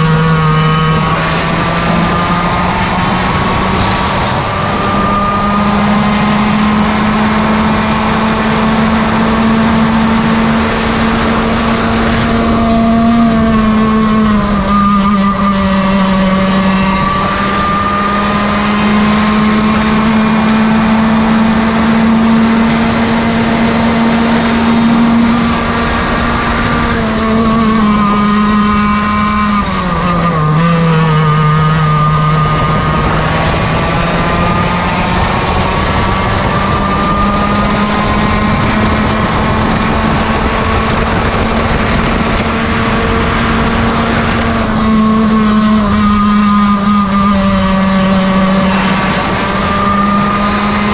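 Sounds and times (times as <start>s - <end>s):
kart engine running hard: 0.0s - 50.9s.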